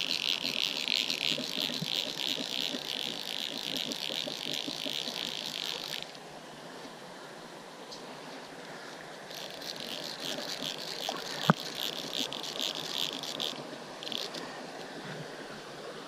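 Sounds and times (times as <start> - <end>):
fly reel ratcheting: 0.0 - 6.2, 9.3 - 14.4.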